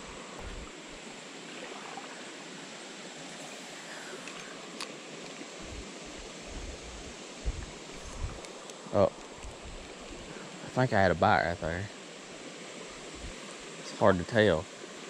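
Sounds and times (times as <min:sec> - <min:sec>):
creek water running: 0:00.0 - 0:15.0.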